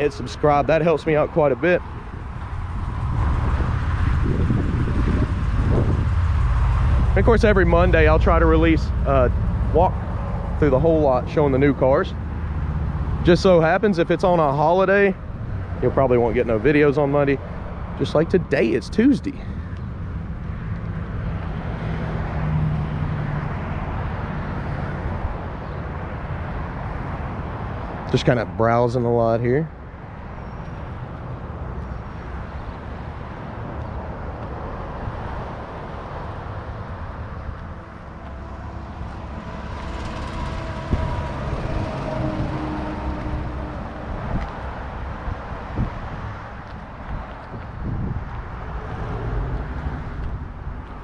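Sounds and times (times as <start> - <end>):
road traffic rumble: 0.0 - 51.0
motor engine droning: 37.6 - 44.8.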